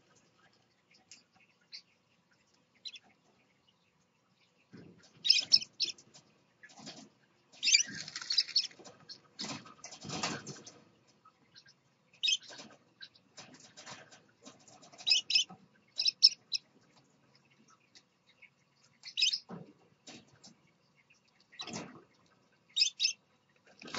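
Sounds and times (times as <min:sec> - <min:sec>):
parrots chirping: 0:05.2 - 0:06.0, 0:07.6 - 0:09.3, 0:11.6 - 0:12.6, 0:15.0 - 0:16.6, 0:19.0 - 0:19.4, 0:22.8 - 0:23.2.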